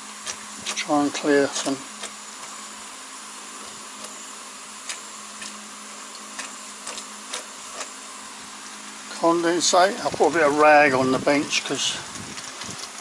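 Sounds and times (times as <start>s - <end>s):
faint steady hum: 0.0s - 13.0s
steam and gas burner hissing: 0.0s - 13.0s.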